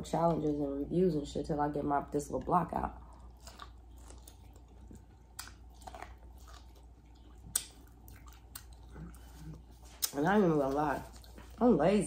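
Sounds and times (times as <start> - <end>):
chewing corn on the cob: 2.9 - 11.7
mouth clicks and smacks: 7.4 - 9.1.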